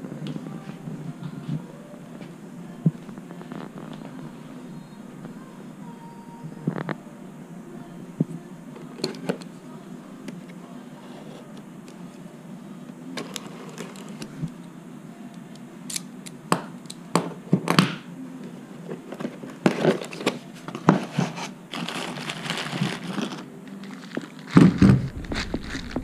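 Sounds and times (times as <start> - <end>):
plastic wrapping crinkling: 19.7 - 26.0.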